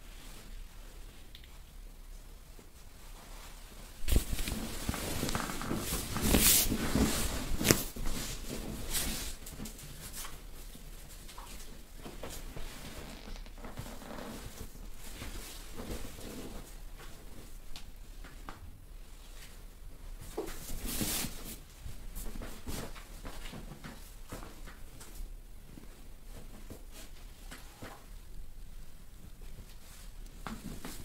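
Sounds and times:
clothing and sheets rustling: 0.0s - 31.0s
faint clicks: 1.3s - 1.6s.

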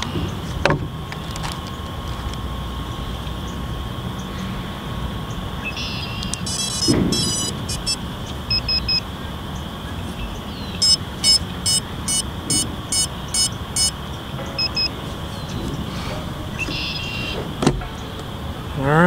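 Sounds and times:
steady background hiss: 0.0s - 19.0s
short electronic beeps: 5.8s - 9.0s, 10.8s - 15.0s.

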